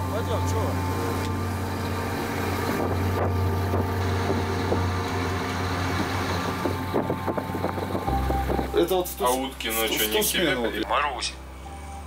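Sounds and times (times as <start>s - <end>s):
wind blowing across microphone: 5.9s - 8.8s.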